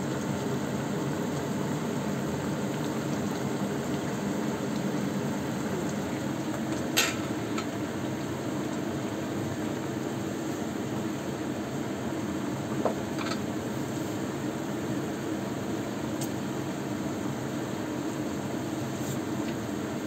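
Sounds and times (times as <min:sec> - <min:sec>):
soup bubbling in a wok: 0:00.0 - 0:20.0.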